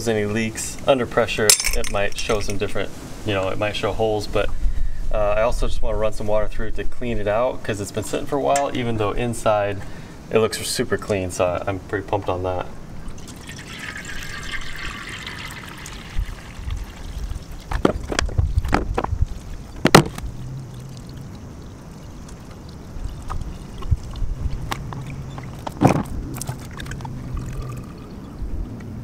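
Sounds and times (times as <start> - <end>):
water pouring from bottles: 13.0 - 28.3
plastic bottles crackling: 16.8 - 21.2.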